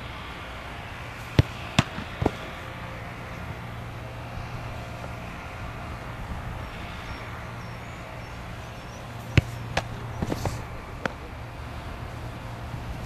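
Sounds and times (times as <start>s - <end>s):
football kicked hard: 1.3s - 2.5s, 9.3s - 11.2s
ball knocking on gloves: 9.4s - 11.2s
goalkeeper diving onto grass: 9.4s - 11.2s.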